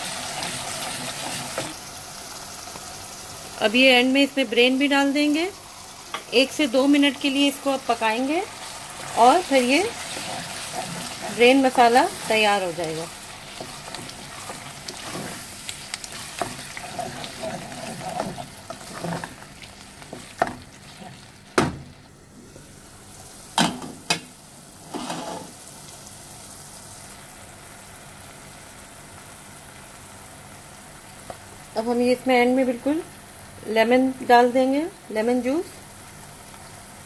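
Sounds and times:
wooden spatula stirring: 0.0 - 1.8, 9.0 - 21.2
food sizzling in a pan: 0.0 - 37.0.

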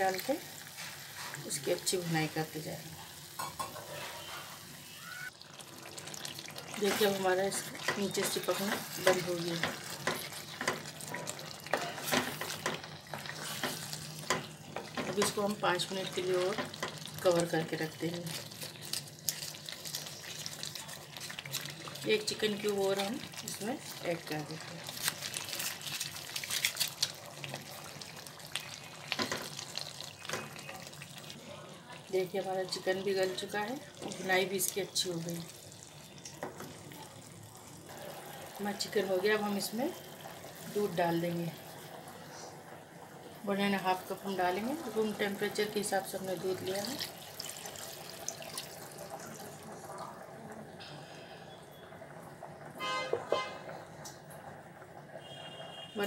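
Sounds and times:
chicken sizzling in a pan: 0.0 - 36.8
wooden spatula scraping: 3.8 - 4.6, 6.8 - 15.3
milk splashing into gravy: 18.2 - 31.4, 46.6 - 49.6.

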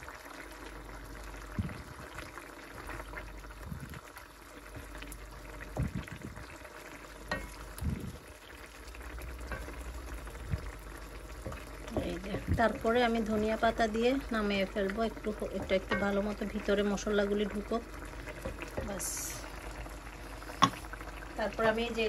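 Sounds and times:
curry bubbling and crackling: 0.0 - 22.0
wooden spatula knocking on pan: 11.4 - 12.9, 15.5 - 16.4.

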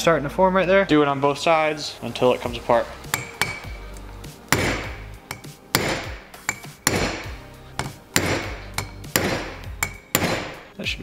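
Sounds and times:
hammer tapping on metal bolts: 3.1 - 10.6.

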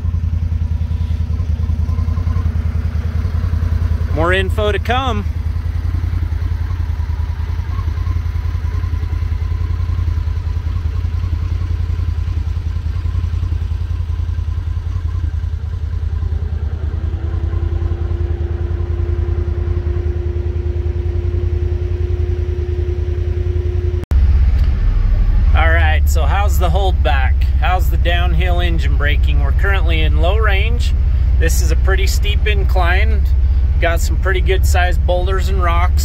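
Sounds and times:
engine low drone: 0.0 - 36.0
steady high-pitched tone: 14.5 - 36.0.

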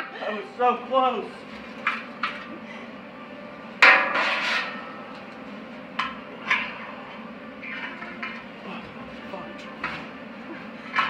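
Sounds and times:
metal clanks on steel tank: 3.8 - 5.0.

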